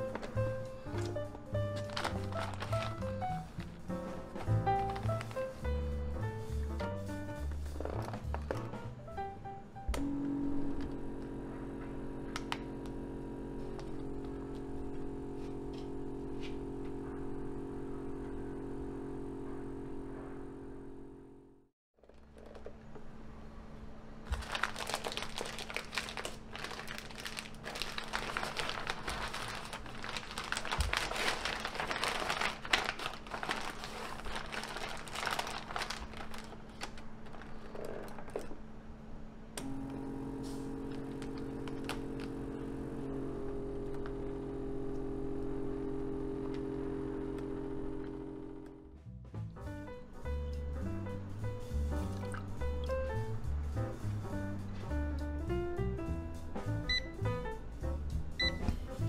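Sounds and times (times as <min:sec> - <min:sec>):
plastic bag crinkling: 0:00.0 - 0:05.5, 0:24.2 - 0:38.5
vacuum sealer pump humming: 0:00.0 - 0:06.6, 0:09.9 - 0:49.0.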